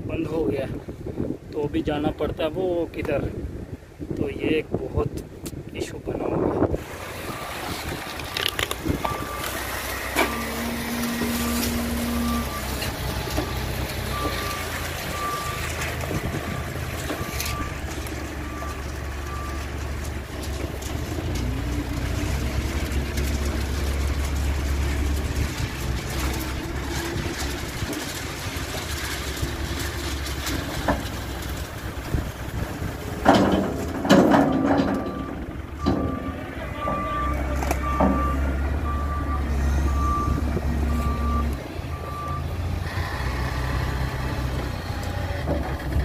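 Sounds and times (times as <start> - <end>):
diesel engine running: 6.6 - 46.0
reversing alarm beeping: 8.4 - 19.7, 34.8 - 43.7.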